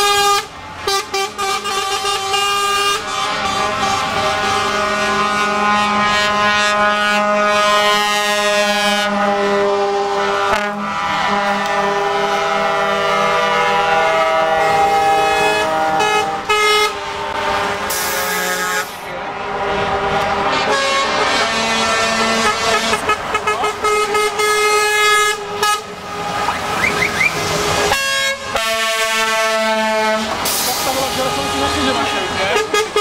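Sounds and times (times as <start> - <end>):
truck air horns: 0.0 - 33.0
truck engine and road noise: 0.0 - 33.0.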